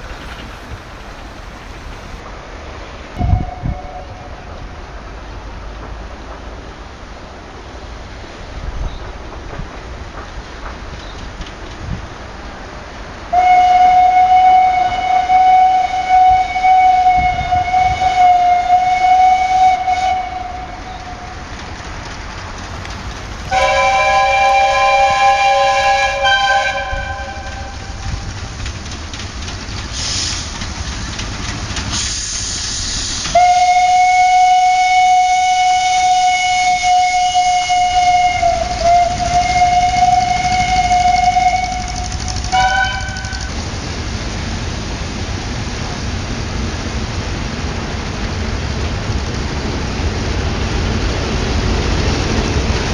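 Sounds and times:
train whistle blasts: 3.2s - 4.4s, 13.3s - 21.3s, 23.5s - 28.1s, 32.0s - 43.5s
short hisses: 32.0s - 33.3s.

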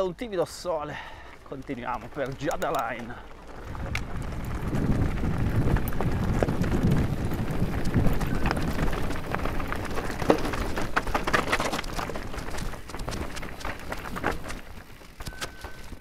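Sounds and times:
bike rattling: 0.0s - 16.0s
bike tyres crunching over gravel: 0.0s - 16.0s
low rumble: 3.2s - 9.5s.

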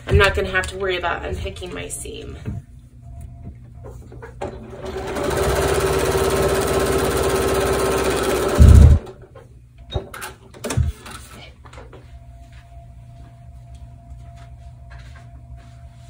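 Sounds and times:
sewing machine stitching: 4.6s - 9.1s.

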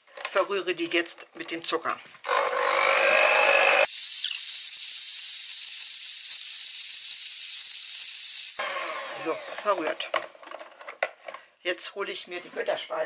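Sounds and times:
electric hand mixer whining: 2.3s - 9.8s
thin high whine: 3.9s - 8.6s.

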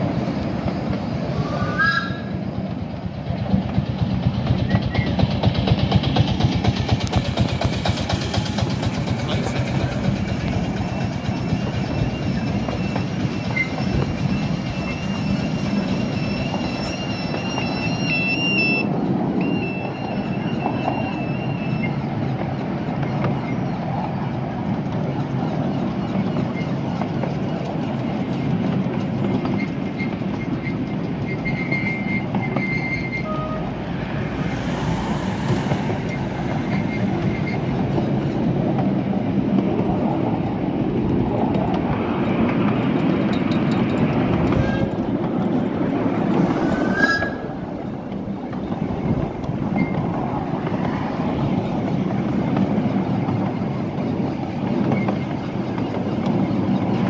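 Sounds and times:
train wheels rumbling on rail: 0.0s - 57.0s
faint high wheel squeals: 9.2s - 38.2s, 43.3s - 50.4s, 54.6s - 57.0s.

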